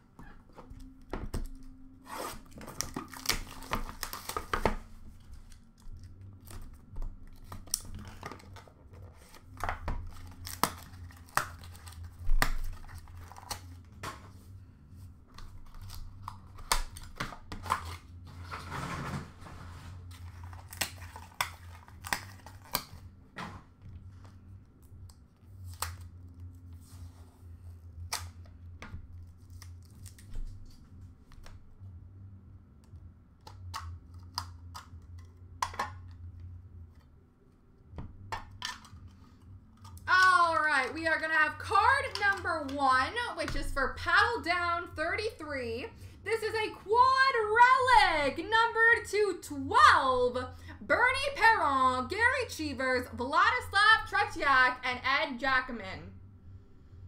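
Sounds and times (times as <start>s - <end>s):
shrink wrap tearing and crinkling: 1.6s - 14.0s, 15.4s - 18.8s, 20.0s - 23.1s, 29.3s - 30.9s.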